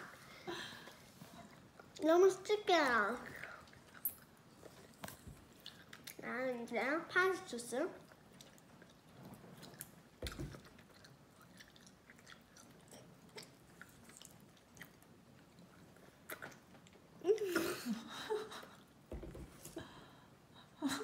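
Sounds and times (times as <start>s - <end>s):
mouth chewing candy: 3.4s - 6.2s, 8.0s - 17.0s.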